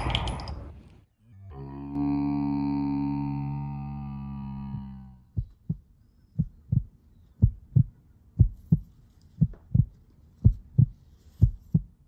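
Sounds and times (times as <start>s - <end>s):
heartbeat thumps: 4.7s - 12.0s.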